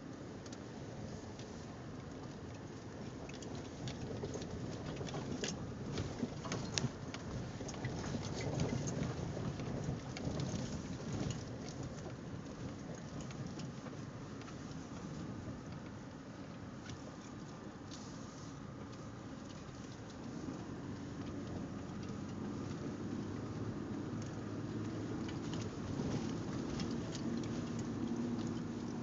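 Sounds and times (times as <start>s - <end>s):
tyres rolling on dirt trail: 18.7s - 29.0s.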